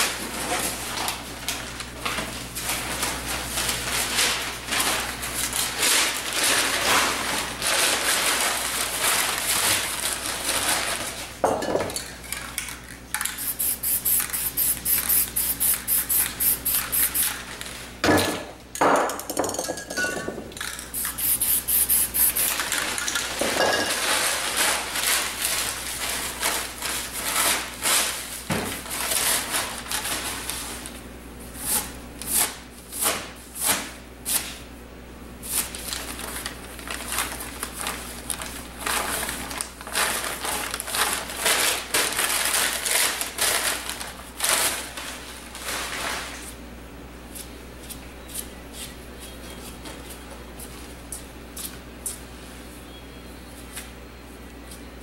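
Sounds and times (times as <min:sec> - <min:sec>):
newspaper rustling: 0:00.1 - 0:11.4, 0:35.5 - 0:46.6
spray paint can hissing: 0:13.4 - 0:17.4, 0:20.9 - 0:22.5.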